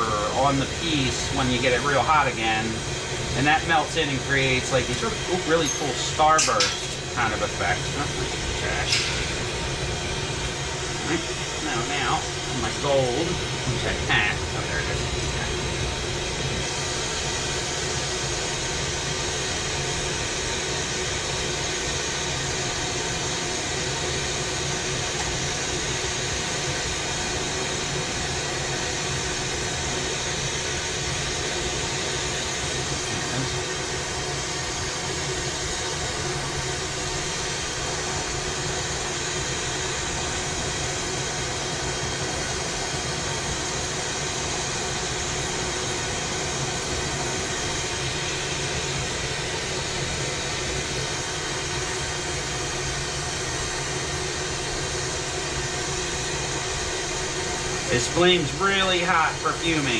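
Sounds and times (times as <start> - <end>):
bench torch burning: 0.0 - 59.9.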